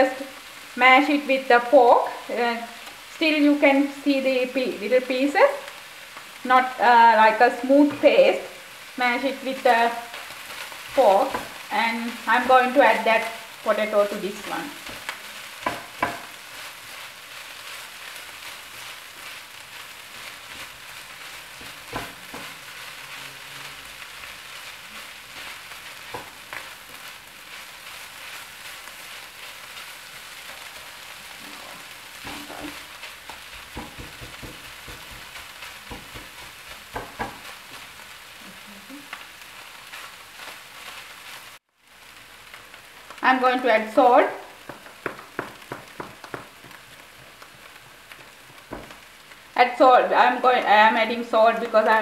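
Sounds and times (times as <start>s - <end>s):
filling sizzling in a frying pan: 0.0s - 52.0s
spatula scraping and knocking pan: 7.7s - 38.0s, 44.6s - 49.3s.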